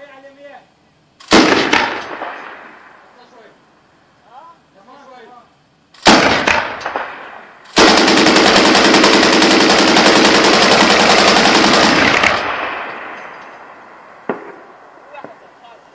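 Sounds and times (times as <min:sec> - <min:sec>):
machine gun burst: 0:01.2 - 0:02.5, 0:06.0 - 0:13.1
gunshot: 0:01.2 - 0:02.9, 0:06.0 - 0:07.4, 0:14.2 - 0:15.4.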